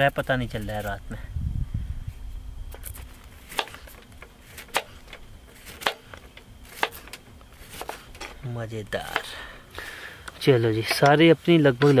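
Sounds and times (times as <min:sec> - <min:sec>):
faint knife cuts: 0:02.8 - 0:08.4
knife chopping on wooden board: 0:03.5 - 0:04.0, 0:04.6 - 0:05.0, 0:05.6 - 0:07.0, 0:07.6 - 0:08.1, 0:09.0 - 0:09.4.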